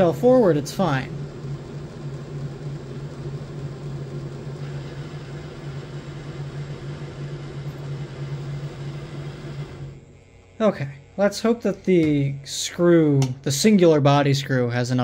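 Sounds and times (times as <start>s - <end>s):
model locomotive motors humming: 0.0s - 13.8s.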